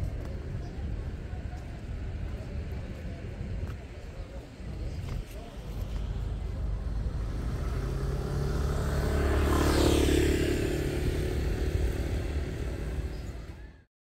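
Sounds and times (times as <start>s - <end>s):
vehicle passing by: 5.9s - 13.7s.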